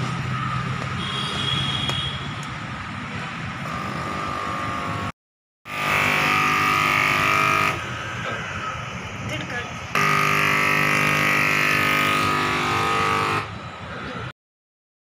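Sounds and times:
vehicle engines passing: 0.0 - 5.1
loud horn-like tone: 1.0 - 2.3, 5.7 - 9.0, 10.0 - 13.6.

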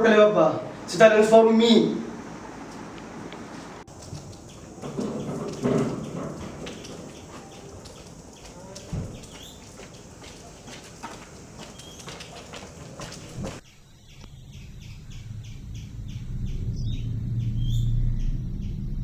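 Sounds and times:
birds chirping: 0.0 - 19.0
footsteps in sandals on concrete: 2.6 - 13.7
low hum: 13.4 - 19.0.

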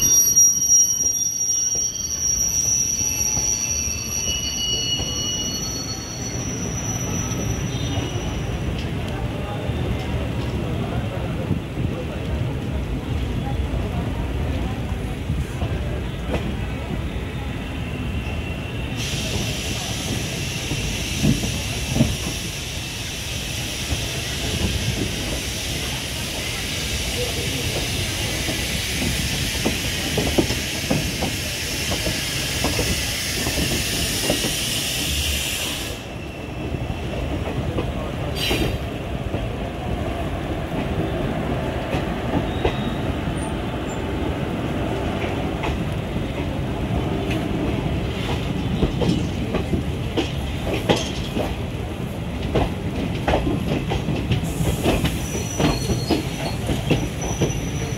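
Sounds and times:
train wheels rattling over rail joints: 45.2 - 57.9.

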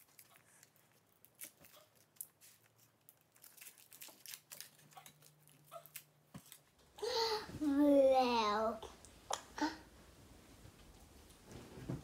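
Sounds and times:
foil crinkling: 0.0 - 6.7.

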